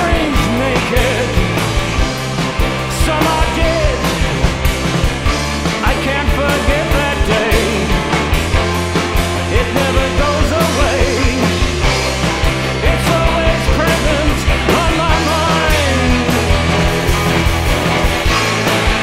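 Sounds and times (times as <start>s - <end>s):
person singing: 0.0s - 1.6s, 2.8s - 4.5s, 5.8s - 8.1s, 9.5s - 11.8s, 12.7s - 16.7s
driving drum beat: 0.0s - 19.0s
rock band playing: 0.0s - 19.0s.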